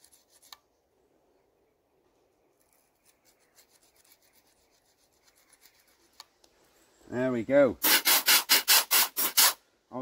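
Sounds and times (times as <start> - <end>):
nail file scratching metal: 3.0 - 6.2, 7.8 - 9.6.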